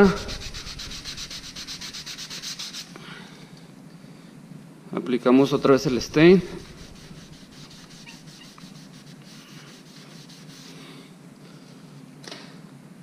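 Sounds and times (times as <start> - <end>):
rag rubbing on wood: 0.0 - 2.9, 5.7 - 10.8
low steady hum: 0.0 - 13.0.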